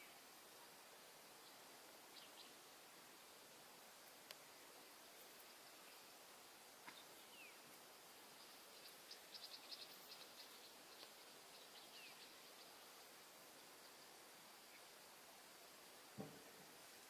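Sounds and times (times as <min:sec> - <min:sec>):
faint outdoor hiss: 0:00.0 - 0:17.0
faint high ticks: 0:04.0 - 0:04.4, 0:10.9 - 0:11.2.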